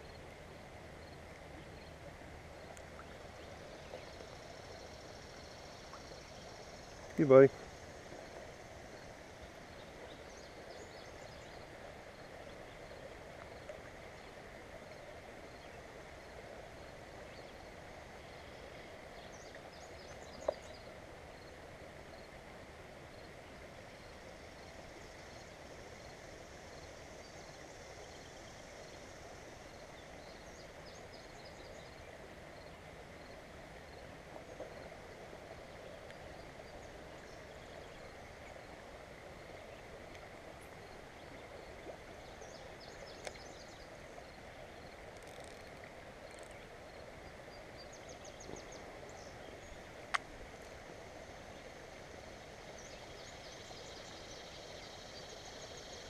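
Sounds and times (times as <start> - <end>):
faint birdsong: 0.0 - 22.4, 23.0 - 56.0
creek water flowing: 0.0 - 56.0.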